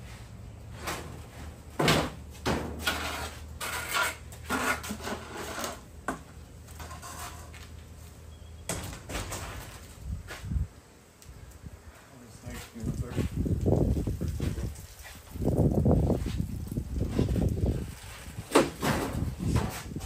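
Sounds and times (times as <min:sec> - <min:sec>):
demolition knocks and clatter: 0:18.4 - 0:20.0.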